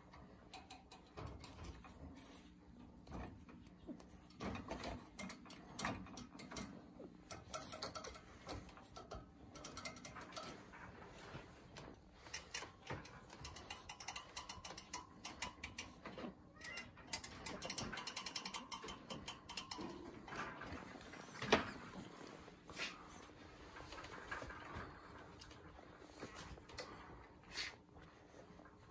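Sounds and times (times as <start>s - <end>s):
wire cage rattling and clicking: 0.0s - 22.3s, 23.3s - 27.6s.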